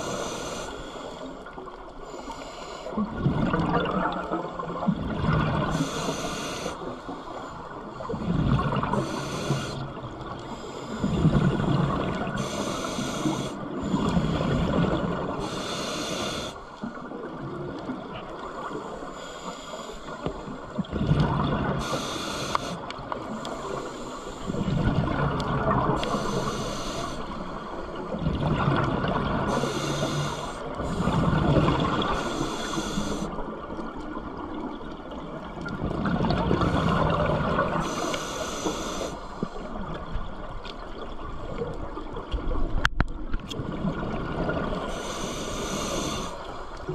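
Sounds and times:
hissing regulator inhale: 0.0s - 3.1s, 5.7s - 11.5s, 12.2s - 17.0s, 18.3s - 20.6s, 21.7s - 24.8s, 25.9s - 28.2s, 29.4s - 33.6s, 36.6s - 40.0s, 44.8s - 46.7s.

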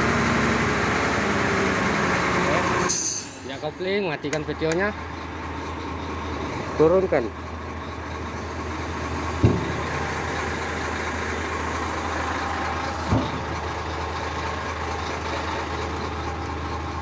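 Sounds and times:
diesel truck engine running: 0.0s - 17.0s
short knocks: 9.4s - 10.0s.

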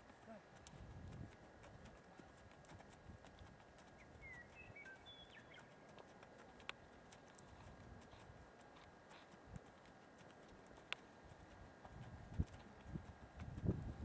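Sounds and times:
horse hoofbeats on sand: 0.0s - 14.0s
bird chirps: 4.0s - 5.9s.

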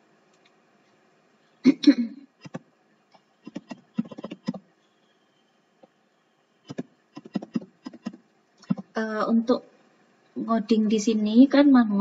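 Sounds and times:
typing on a keyboard: 2.4s - 2.6s, 3.4s - 4.6s, 6.7s - 8.9s.

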